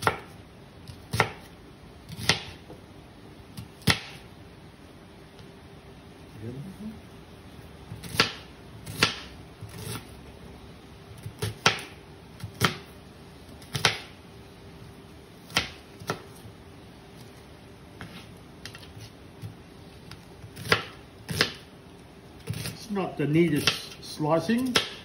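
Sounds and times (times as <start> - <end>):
knife chopping on cutting board: 0.0 - 1.5, 2.1 - 2.8, 3.6 - 4.2, 7.9 - 10.0, 11.3 - 12.9, 13.6 - 14.1, 18.0 - 19.6, 20.5 - 21.7, 22.4 - 22.8, 24.6 - 25.0.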